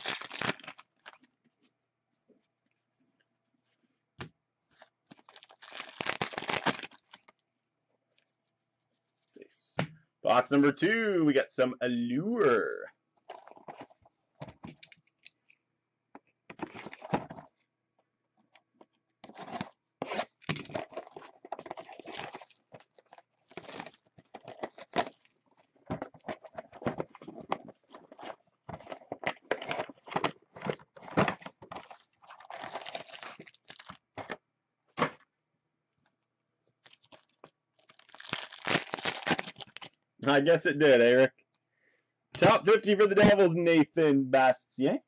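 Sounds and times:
plastic wrap tearing: 0:00.0 - 0:01.2, 0:05.1 - 0:07.3, 0:19.3 - 0:25.3, 0:32.3 - 0:34.0, 0:36.8 - 0:40.0
crinkling and rustling of packaging: 0:00.0 - 0:01.7, 0:04.6 - 0:07.5, 0:13.2 - 0:35.3, 0:36.0 - 0:40.0.

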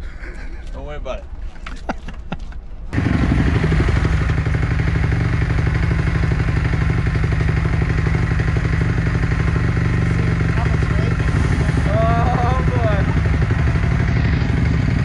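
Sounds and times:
motocross bike engine idling: 0:03.0 - 0:15.0.

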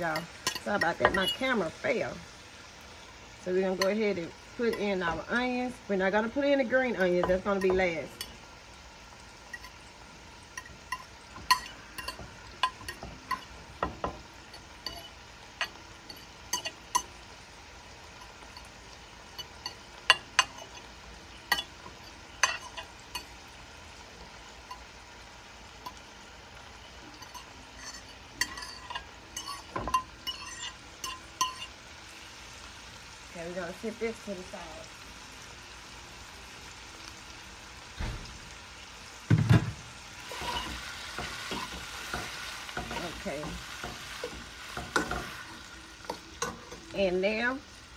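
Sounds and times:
vegetables sizzling in oil: 0:00.0 - 0:47.9
fork scraping and tapping: 0:27.2 - 0:31.7.

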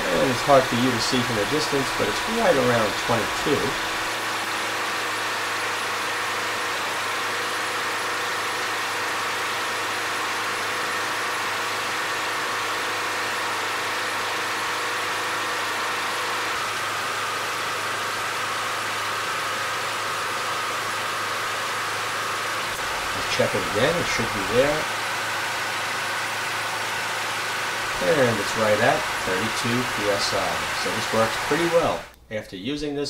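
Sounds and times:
lawn mower engine running: 0:00.0 - 0:32.2.

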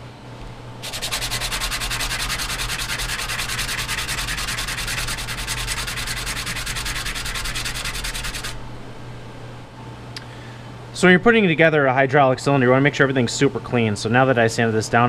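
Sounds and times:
sandpaper rasping on metal: 0:00.8 - 0:08.6.

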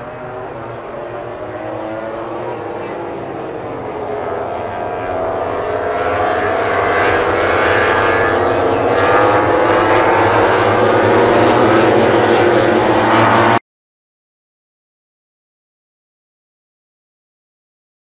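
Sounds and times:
racing motorcycles screaming past: 0:00.0 - 0:13.6.

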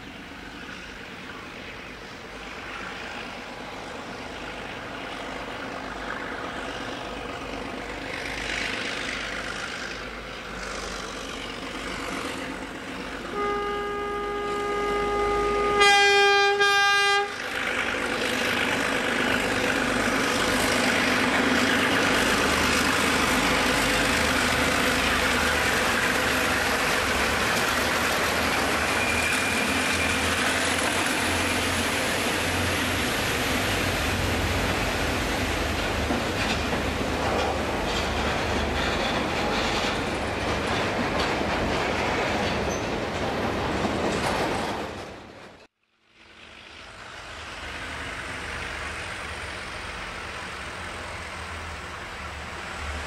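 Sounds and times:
diesel locomotive engines: 0:00.0 - 0:53.0
locomotive horn chord: 0:13.2 - 0:17.4
wagons rolling past: 0:17.5 - 0:51.7.

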